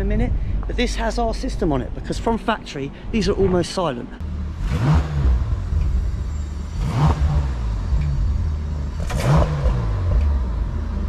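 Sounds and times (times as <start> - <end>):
car engine idling: 4.2 - 11.0
engine throttle blips: 4.2 - 11.0.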